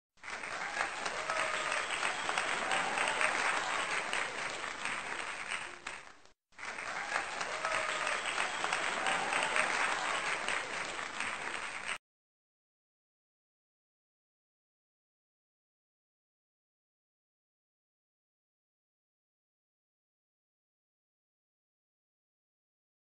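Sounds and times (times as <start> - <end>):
audience applauding: 0.2 - 12.0.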